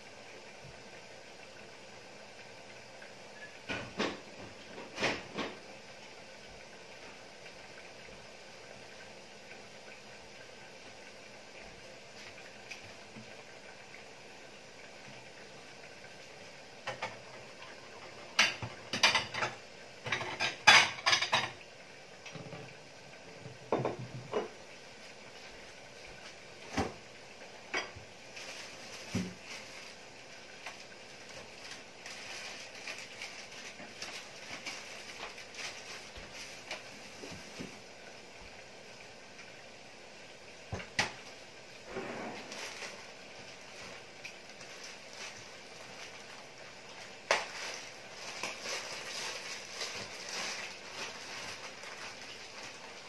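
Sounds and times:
dishes and cutlery clinking: 0:18.4 - 0:21.6.

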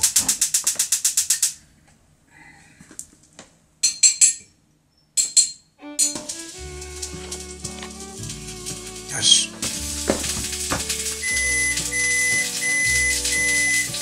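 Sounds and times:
dishes clinking: 0:05.2 - 0:06.4
rapid dish scraping: 0:06.0 - 0:14.0.

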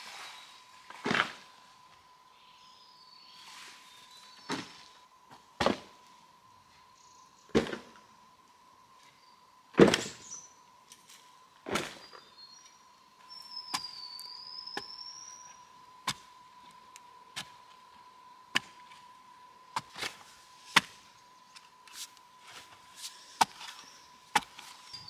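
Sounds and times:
faint steady high tone: 0:02.2 - 0:05.1, 0:12.2 - 0:15.8.

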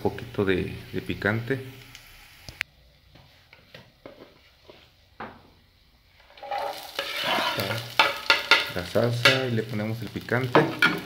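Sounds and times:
food sizzling in hot oil: 0:00.0 - 0:02.6, 0:06.2 - 0:11.0.

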